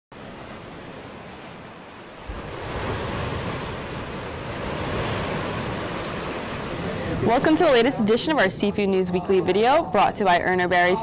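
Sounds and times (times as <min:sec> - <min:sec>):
ocean waves rushing: 0:00.1 - 0:08.6.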